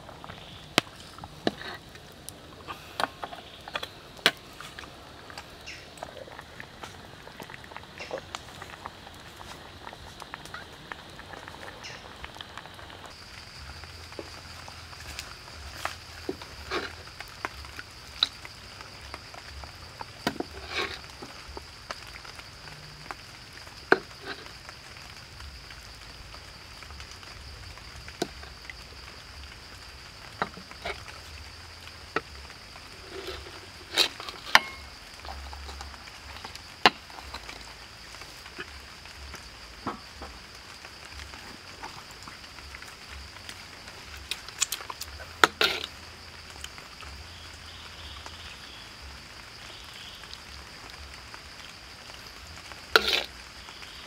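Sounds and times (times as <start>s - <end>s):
sauce sizzling in a wok: 6.6s - 54.0s.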